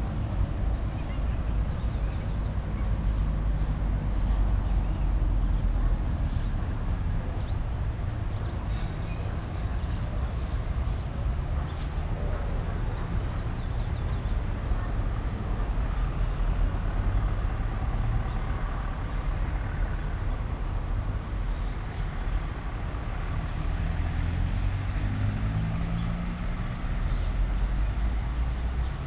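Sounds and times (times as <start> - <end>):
vehicle engine driving past: 23.1 - 29.0.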